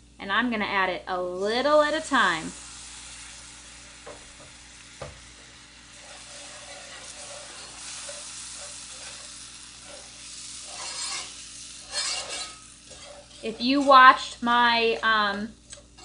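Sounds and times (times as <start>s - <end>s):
food sizzling in a skillet: 1.2s - 16.0s
whisk scraping a pan: 5.3s - 14.4s, 15.6s - 16.0s.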